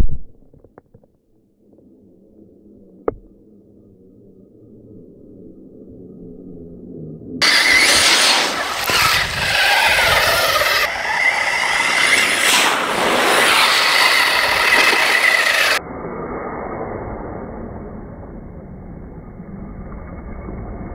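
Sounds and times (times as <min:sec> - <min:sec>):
toy truck electric motor whining: 0:07.4 - 0:15.8
water splashing off tyres: 0:07.4 - 0:15.8.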